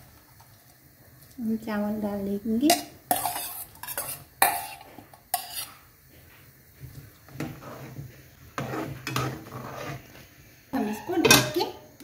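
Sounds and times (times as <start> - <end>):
spoon stirring rice in pan: 2.5 - 11.5
metal bowl clinking: 2.7 - 5.8, 10.8 - 11.7
spoon scraping metal pan: 2.7 - 5.9, 7.3 - 10.2, 10.8 - 11.8.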